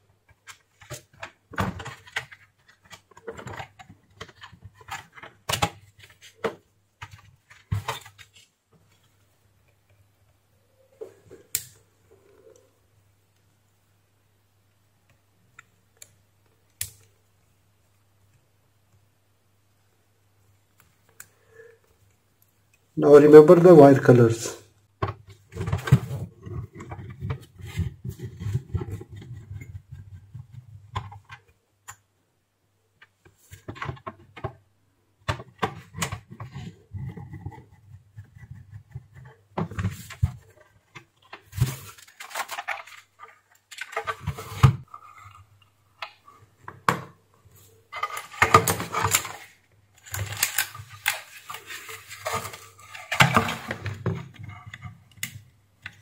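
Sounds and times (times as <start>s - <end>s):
clicks and scrapes of plastic parts: 0.2s - 9.1s, 25.0s - 32.0s, 35.2s - 56.0s.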